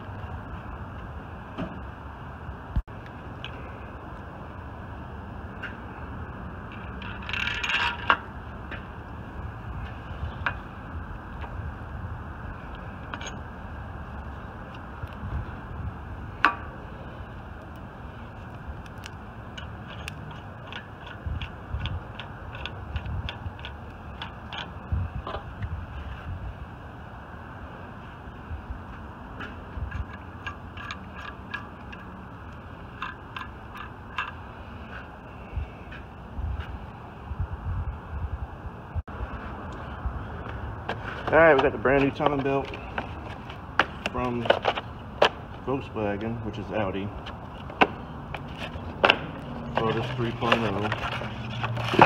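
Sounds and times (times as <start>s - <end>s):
hand tools clicking: 19.5s - 24.7s.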